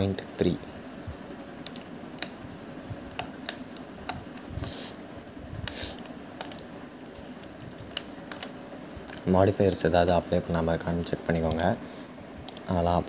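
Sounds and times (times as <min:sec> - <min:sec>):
mouse and keyboard clicks: 0:01.6 - 0:02.4, 0:03.1 - 0:04.5, 0:05.7 - 0:06.7, 0:07.5 - 0:09.9
short hissing rustles: 0:04.5 - 0:05.0, 0:05.6 - 0:06.1.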